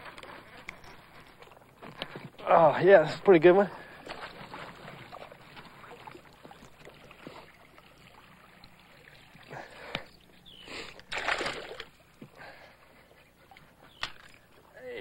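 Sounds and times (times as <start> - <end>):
fish splashing in water: 4.2 - 12.1.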